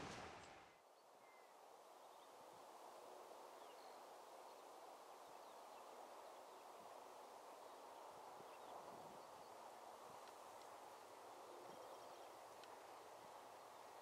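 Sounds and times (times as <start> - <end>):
faint outdoor hiss: 0.0 - 14.0
faint bird chirps: 0.8 - 2.4, 11.4 - 12.5.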